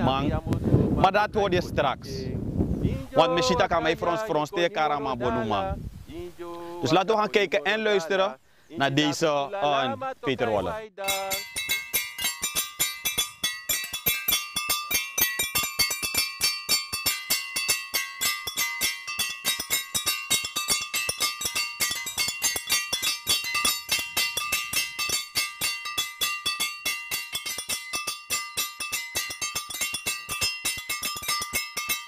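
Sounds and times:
rapid metallic strikes: 0:11.0 - 0:32.0
sustained bell-like tones: 0:11.0 - 0:32.0.

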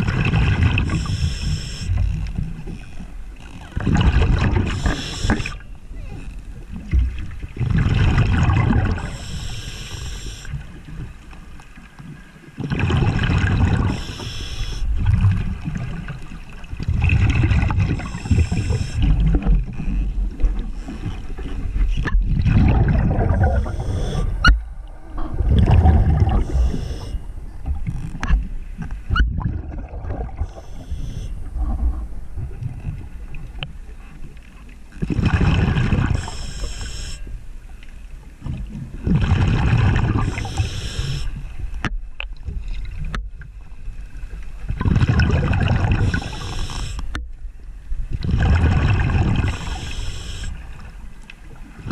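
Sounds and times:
underwater rumbling and gurgling: 0:00.0 - 0:51.9.

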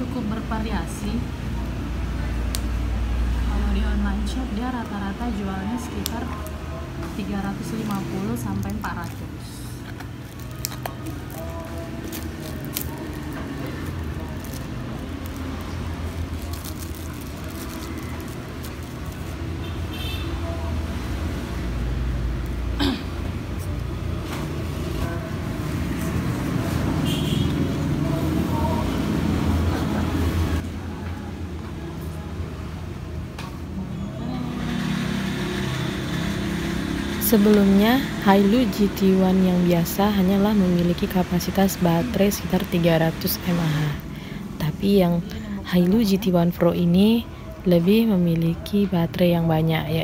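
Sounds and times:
plastic shrink wrap crinkling: 0:07.9 - 0:19.5.

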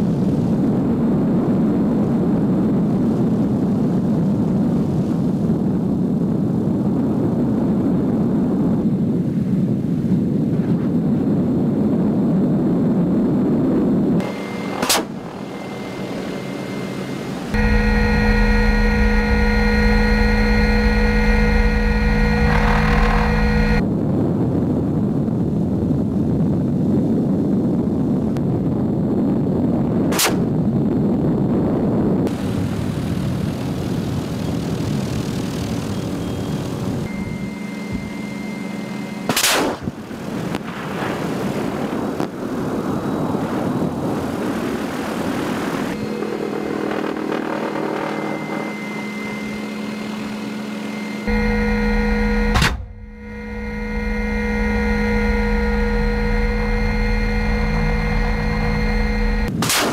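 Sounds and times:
helicopter rotor and turbine noise: 0:00.0 - 0:24.0, 0:32.1 - 0:59.6
sharp weapon reports: 0:14.2 - 0:23.8, 0:50.9 - 0:59.9.

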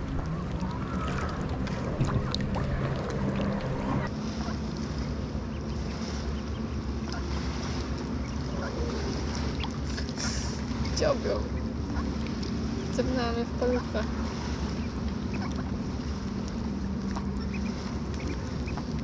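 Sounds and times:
water lapping and splashing: 0:00.0 - 0:19.0
wind rumble on microphone: 0:00.0 - 0:19.0.

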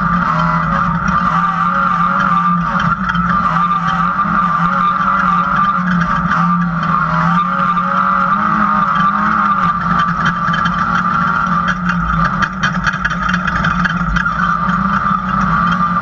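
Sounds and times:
race car engine running hard: 0:00.0 - 0:16.0
chassis knocks and rattles: 0:08.8 - 0:16.0.

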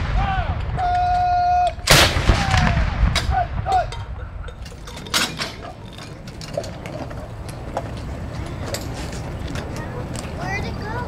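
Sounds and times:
men shouting commands: 0:00.0 - 0:04.0.

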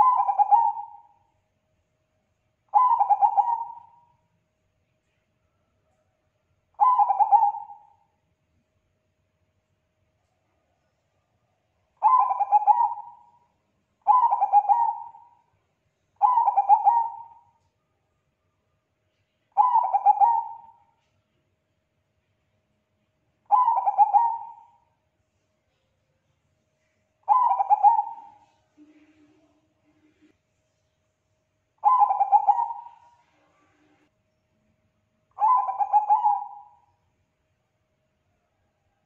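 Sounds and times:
dove cooing: 0:00.0 - 0:01.2, 0:02.7 - 0:04.1, 0:06.8 - 0:08.0, 0:12.0 - 0:13.4, 0:14.0 - 0:15.4, 0:16.2 - 0:17.5, 0:19.6 - 0:20.8, 0:23.5 - 0:24.8, 0:27.2 - 0:30.3, 0:31.8 - 0:33.5, 0:35.4 - 0:36.9.

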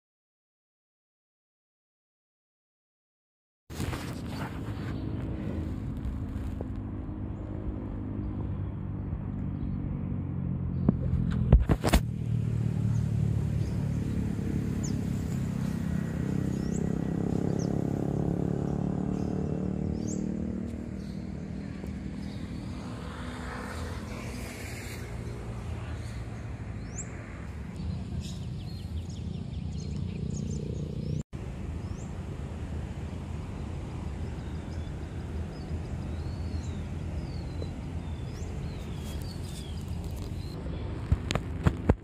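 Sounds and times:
low outdoor rumble: 0:03.7 - 0:42.0
small birds chirping: 0:12.7 - 0:32.3, 0:32.9 - 0:41.4.

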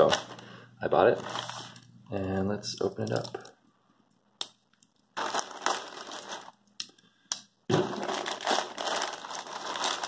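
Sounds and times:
plastic mailer bag crinkling: 0:00.0 - 0:01.9, 0:04.8 - 0:06.7, 0:07.7 - 0:10.0.

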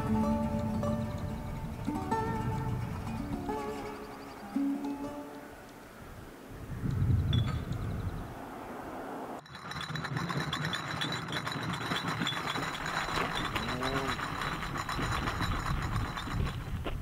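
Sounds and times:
wheelbarrow rolling over gravel: 0:00.0 - 0:04.5, 0:09.4 - 0:17.0.

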